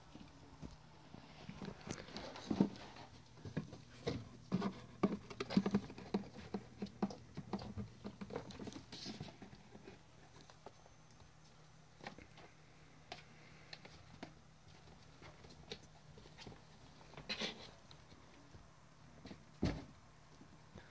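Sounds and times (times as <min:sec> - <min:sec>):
kittens scampering on wooden floor: 0:01.4 - 0:18.3.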